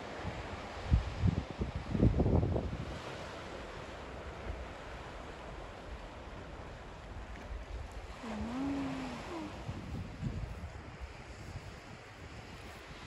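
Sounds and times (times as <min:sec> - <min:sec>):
sea surf on rocks: 0:00.0 - 0:13.0
wind rumbling on microphone: 0:00.0 - 0:13.0
person humming: 0:08.2 - 0:09.8.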